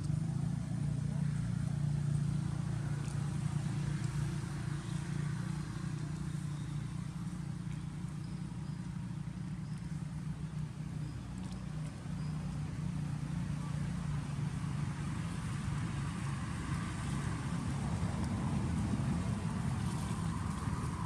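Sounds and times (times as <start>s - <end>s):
low engine hum: 0.0s - 21.0s.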